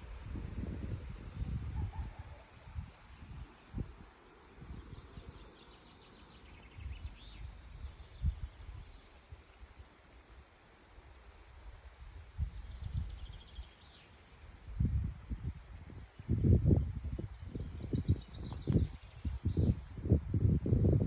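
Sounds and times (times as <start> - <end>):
wind buffeting microphone: 0.0 - 5.6, 6.4 - 9.0, 11.8 - 13.6, 14.5 - 21.0
small birds singing: 0.6 - 21.0.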